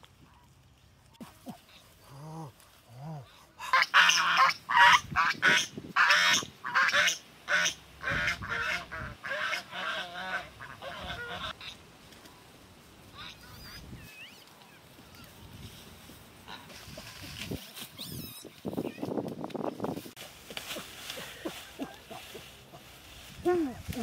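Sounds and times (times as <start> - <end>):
geese honking: 3.7 - 11.8.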